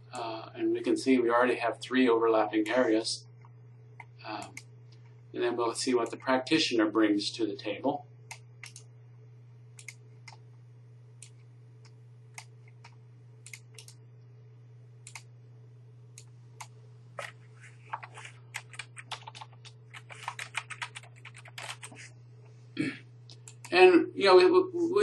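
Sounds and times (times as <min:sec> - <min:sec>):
steady low hum: 0:00.0 - 0:25.0
computer keyboard typing: 0:08.3 - 0:08.8, 0:09.8 - 0:10.4, 0:16.6 - 0:22.0.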